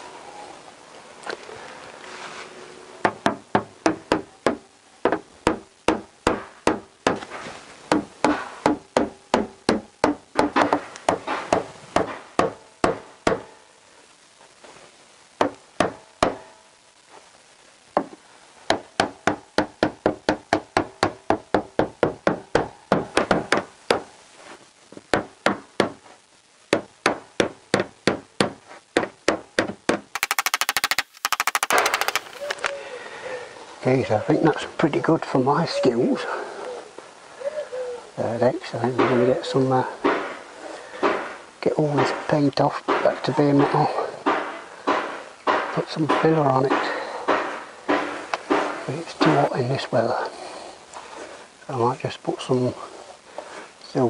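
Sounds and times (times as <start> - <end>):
hammer knocking on metal panel: 3.0 - 7.2, 7.9 - 13.5, 18.7 - 24.1.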